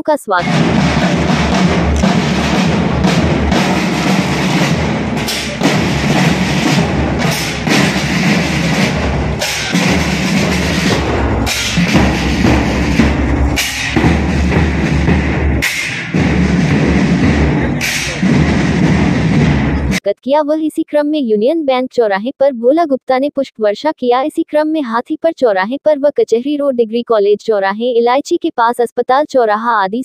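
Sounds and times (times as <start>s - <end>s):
marching drums beating: 0.4s - 20.0s.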